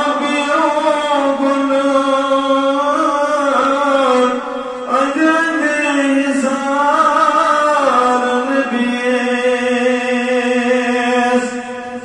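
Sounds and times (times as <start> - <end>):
man chanting: 0.0 - 12.0.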